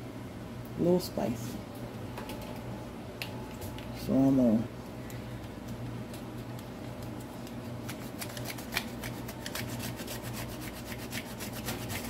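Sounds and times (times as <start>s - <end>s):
ginger scraping on grater: 8.1s - 12.0s.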